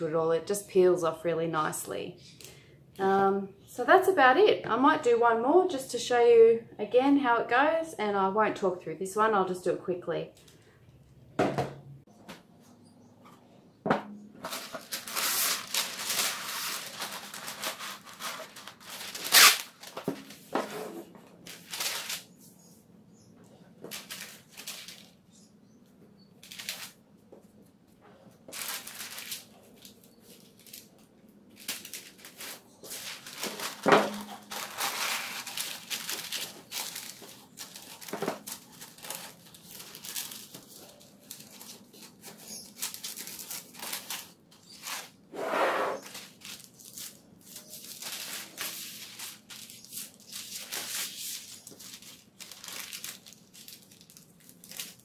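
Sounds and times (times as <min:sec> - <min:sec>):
paper crinkling and rustling: 0:14.4 - 0:22.5, 0:23.8 - 0:25.5, 0:26.4 - 0:27.7, 0:28.3 - 0:45.2, 0:46.0 - 0:55.0.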